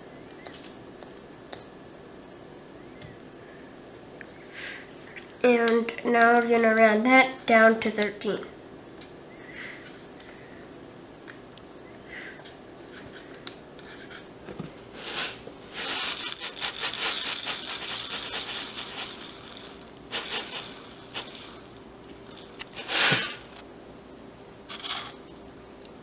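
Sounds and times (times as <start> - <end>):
salt rustling scrapes: 14.9 - 23.6, 24.7 - 25.3
salt pouring into plastic bowl: 15.0 - 23.6, 24.7 - 25.3.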